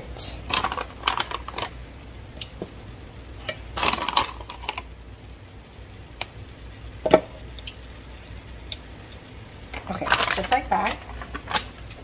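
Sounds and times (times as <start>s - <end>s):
dumplings clicking in a frying pan: 8.6s - 12.0s.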